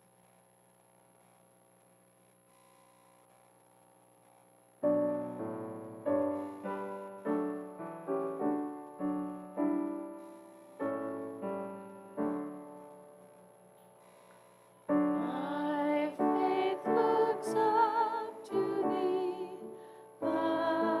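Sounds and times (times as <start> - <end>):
piano chords ringing: 4.8 - 14.2, 14.8 - 21.0.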